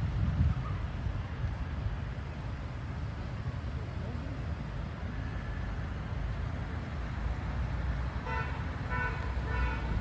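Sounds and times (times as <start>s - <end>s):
road traffic rumble: 0.0s - 10.0s
car horn tooting: 8.2s - 10.0s.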